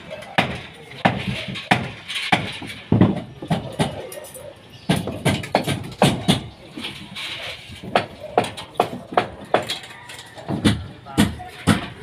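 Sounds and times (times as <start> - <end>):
hammer knocking on timber: 10.5 - 12.0.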